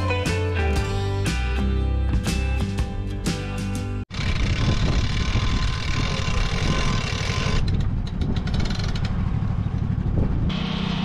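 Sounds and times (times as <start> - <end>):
sawmill engine running: 4.1 - 11.0.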